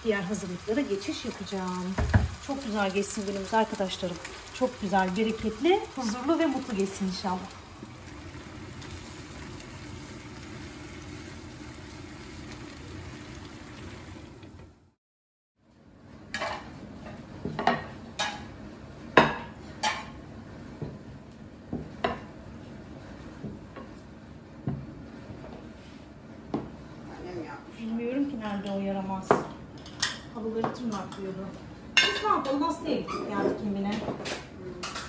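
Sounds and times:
food sizzling in pans: 0:00.0 - 0:14.7, 0:16.3 - 0:21.0.

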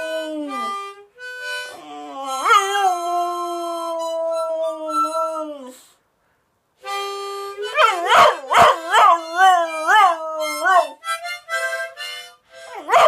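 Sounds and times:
harmonica playing: 0:00.0 - 0:05.2, 0:06.8 - 0:13.0
puppy howling: 0:01.8 - 0:05.8, 0:07.6 - 0:11.0.

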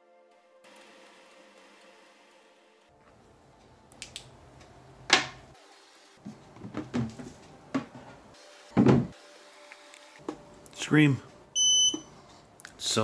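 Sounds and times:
knocks and clunks of handling: 0:06.3 - 0:08.2.

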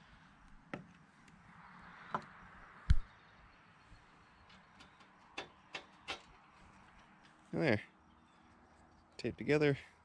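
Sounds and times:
light metal clicks and knocks: 0:04.4 - 0:07.4.

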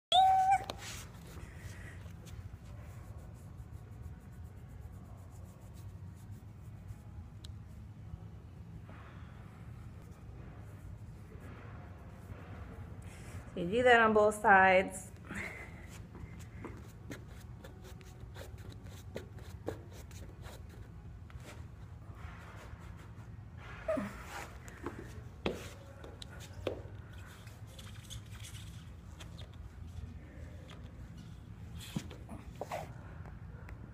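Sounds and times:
low steady hum: 0:00.1 - 0:33.9
knocks and shuffling on rubber mat: 0:00.3 - 0:02.8, 0:15.4 - 0:33.9.

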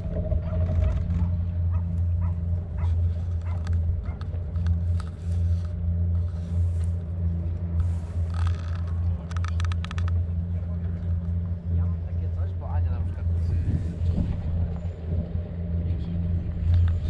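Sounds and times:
tram rumbling on track: 0:00.0 - 0:17.0
light clicks and rattles: 0:00.7 - 0:06.9, 0:07.8 - 0:11.8.

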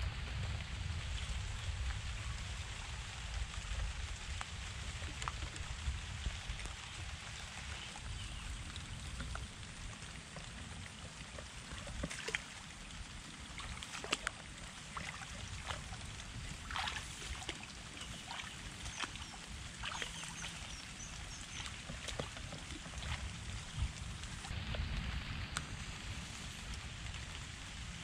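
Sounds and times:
footsteps splashing through water: 0:11.4 - 0:12.7, 0:13.4 - 0:24.5
legs swishing through wet grass: 0:11.4 - 0:28.0.

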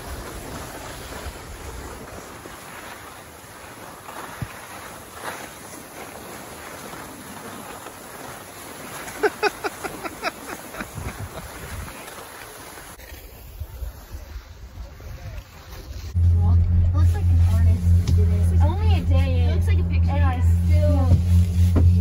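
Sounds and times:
skis scraping on snow: 0:00.0 - 0:16.2
wind noise on microphone: 0:10.7 - 0:12.1.

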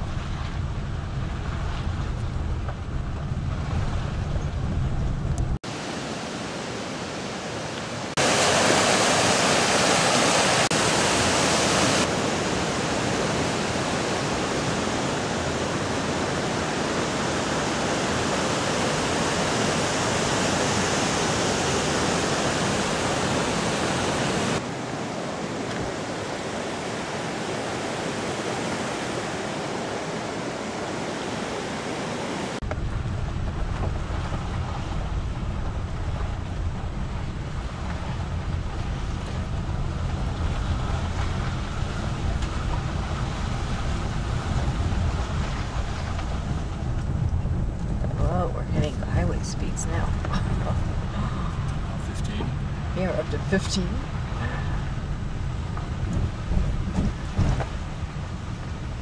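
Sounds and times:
car low rumble: 0:00.0 - 0:05.7, 0:32.6 - 0:59.0
water rushing over rocks: 0:05.6 - 0:59.0.

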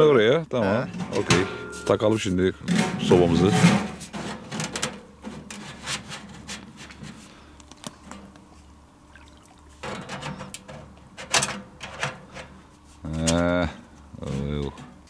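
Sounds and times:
metal pipe scraping and clinking: 0:00.8 - 0:06.6.

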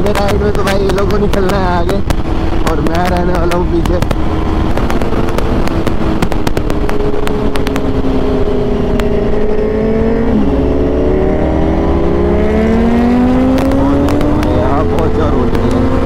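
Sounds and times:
sharp clicks: 0:00.0 - 0:08.0
motorcycle engine running: 0:00.0 - 0:16.0.

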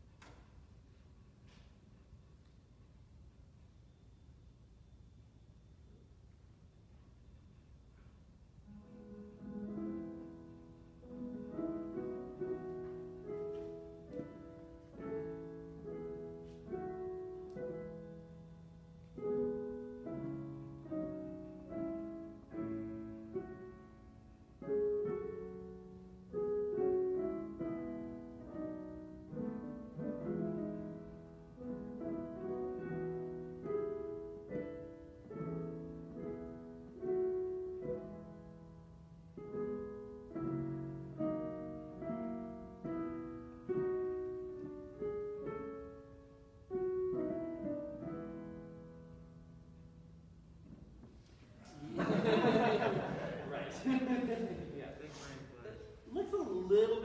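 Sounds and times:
digital pianos playing chords: 0:08.6 - 0:51.0.

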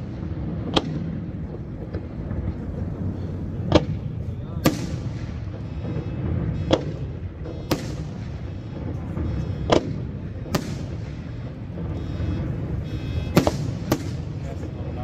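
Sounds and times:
low background rumble: 0:00.0 - 0:15.0
firework shells bursting: 0:03.6 - 0:15.0.

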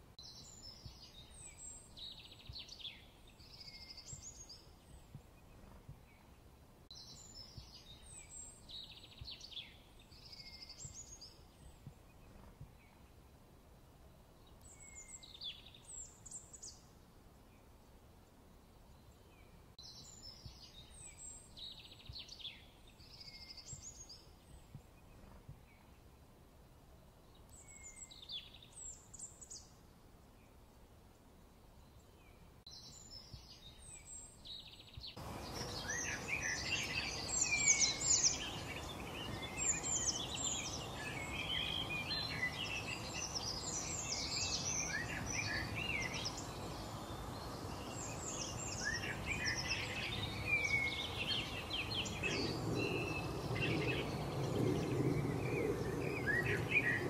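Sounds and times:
steady background hiss: 0:00.0 - 0:57.0
chorus of many birds calling: 0:35.2 - 0:57.0
birds chirping and whistling: 0:35.4 - 0:57.0.

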